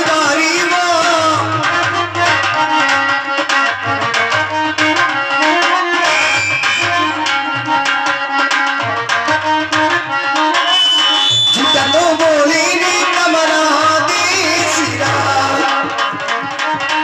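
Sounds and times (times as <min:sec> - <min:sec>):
hand drum rhythm: 0:11.6 - 0:17.0.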